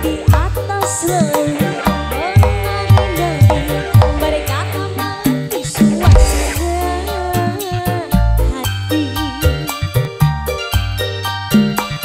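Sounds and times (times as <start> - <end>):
hand drums: 0.0 - 6.9
electric guitar: 0.0 - 12.0
keyboard: 0.0 - 12.0
deep bass drum strokes: 5.8 - 7.0.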